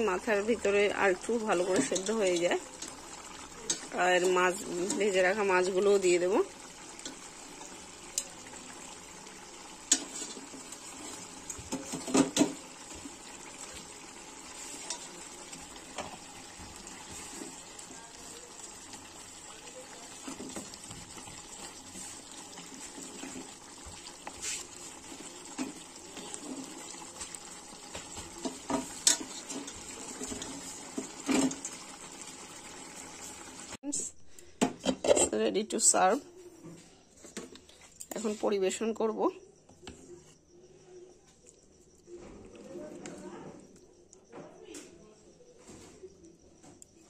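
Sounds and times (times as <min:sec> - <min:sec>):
spatula stirring curry: 0:00.2 - 0:33.6.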